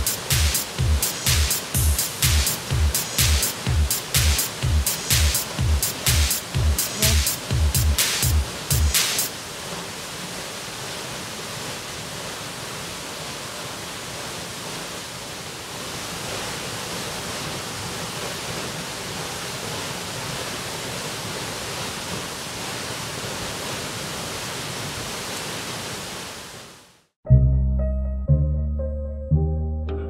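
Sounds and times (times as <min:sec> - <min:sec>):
waterfall rushing: 0:00.0 - 0:26.9.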